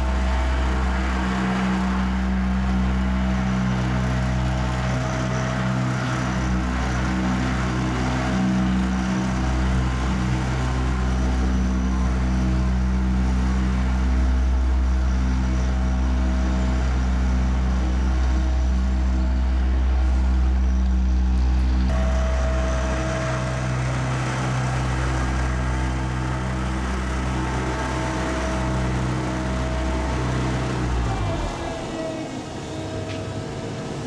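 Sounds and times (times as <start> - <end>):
road roller engine humming: 0.0 - 34.0.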